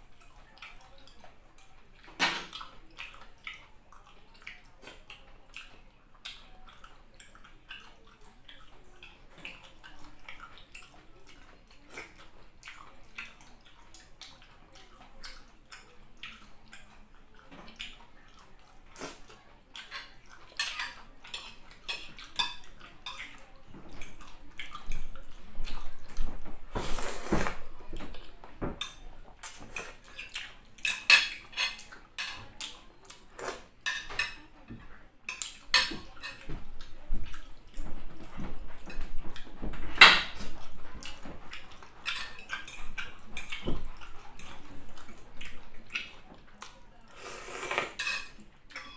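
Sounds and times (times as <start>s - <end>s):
chewing: 0.0s - 48.9s
noodles slurping: 26.8s - 27.6s, 47.1s - 48.0s.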